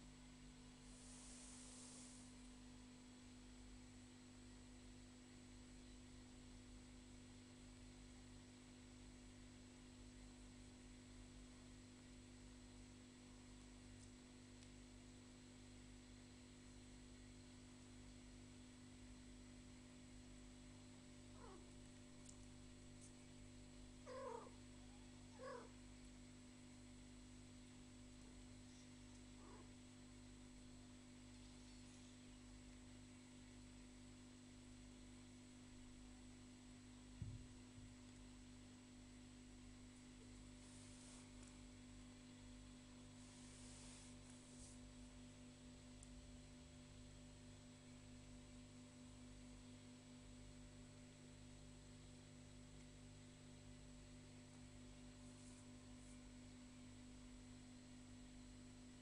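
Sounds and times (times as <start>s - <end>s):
faint low hum: 0.0s - 59.0s
soft hiss: 0.6s - 3.2s, 18.7s - 36.0s, 36.6s - 47.0s
cat mewing faintly: 21.3s - 21.8s, 24.0s - 25.8s, 29.4s - 29.8s.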